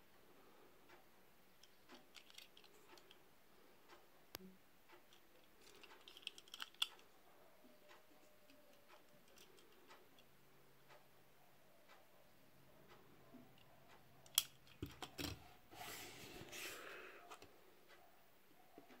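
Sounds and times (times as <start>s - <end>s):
toy car clicking: 1.6s - 3.2s, 5.1s - 7.1s, 8.4s - 10.3s, 14.2s - 15.4s.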